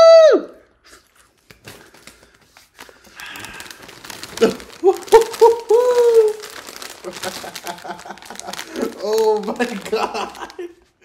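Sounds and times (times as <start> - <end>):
chip bag crinkling: 1.4 - 11.0.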